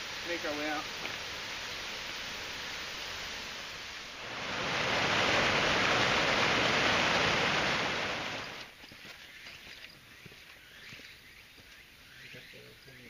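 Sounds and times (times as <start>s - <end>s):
stream rushing over rocks: 0.0s - 9.2s.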